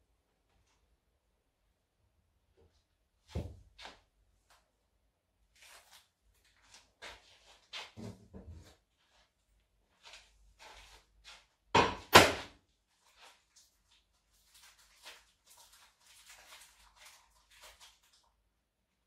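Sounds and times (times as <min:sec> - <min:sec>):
objects thunking on kitchen counter: 0:11.8 - 0:12.5.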